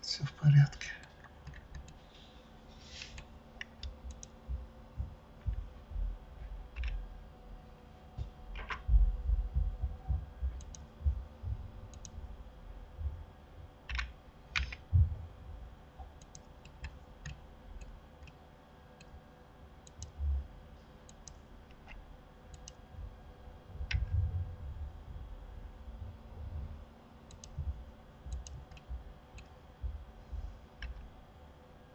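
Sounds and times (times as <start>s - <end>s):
faint steady hum: 0.0s - 31.9s
computer mouse clicks: 1.0s - 2.0s, 3.0s - 4.4s, 6.7s - 7.0s, 10.6s - 10.9s, 11.9s - 12.2s, 13.9s - 14.9s, 16.2s - 18.4s, 19.8s - 20.2s, 21.1s - 22.8s, 27.3s - 27.7s, 28.3s - 29.5s, 30.8s - 31.1s
keyboard keystrokes: 3.2s - 4.4s, 10.6s - 10.9s, 13.9s - 14.9s, 27.3s - 27.6s
dull low thumps: 4.1s - 6.8s, 8.2s - 12.3s, 14.9s - 15.6s, 23.0s - 26.8s, 29.8s - 30.6s.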